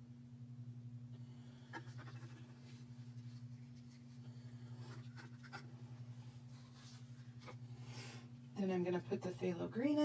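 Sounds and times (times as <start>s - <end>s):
low electrical hum: 0.0s - 10.0s
scratching and rustling of plastic cups: 1.7s - 7.7s.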